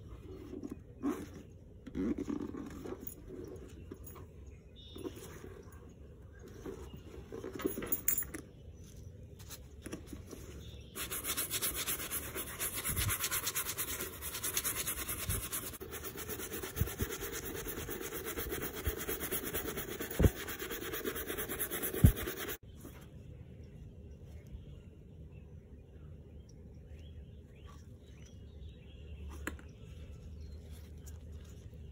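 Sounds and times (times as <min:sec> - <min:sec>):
gloved hand rubbing leather: 0:10.2 - 0:22.6.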